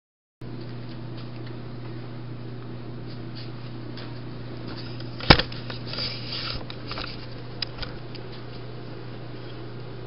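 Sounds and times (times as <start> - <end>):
steady low hum: 0.4 - 10.0.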